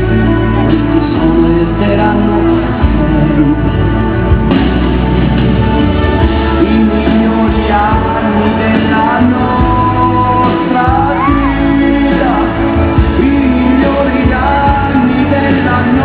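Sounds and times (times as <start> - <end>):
pop song with singing: 0.0 - 16.0.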